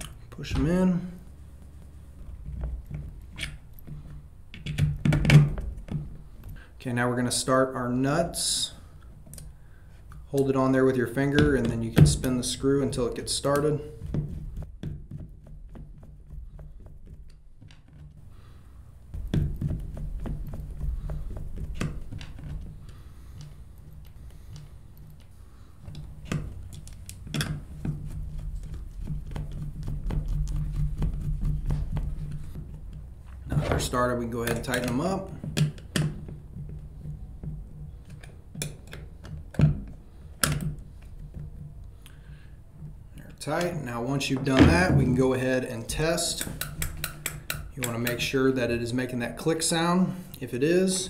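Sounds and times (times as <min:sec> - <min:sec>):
sharp knocks: 0:44.4 - 0:45.3
screwdriver ticking and tapping: 0:46.4 - 0:48.2.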